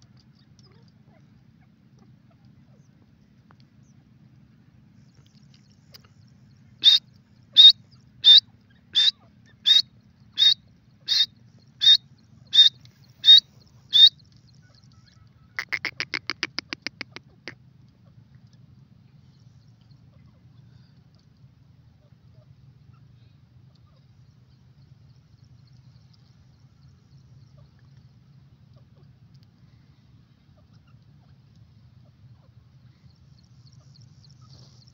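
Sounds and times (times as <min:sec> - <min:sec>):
loud high francolin calls: 0:06.8 - 0:17.6.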